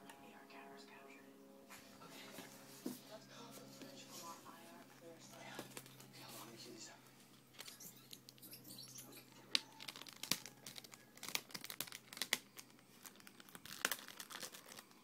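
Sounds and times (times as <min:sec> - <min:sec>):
packaging crinkling: 0:05.5 - 0:06.1, 0:07.5 - 0:15.0.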